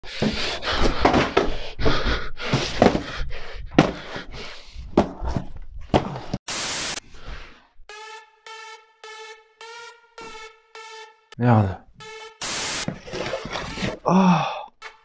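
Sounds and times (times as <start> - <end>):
burst of hiss: 6.5 - 7.0.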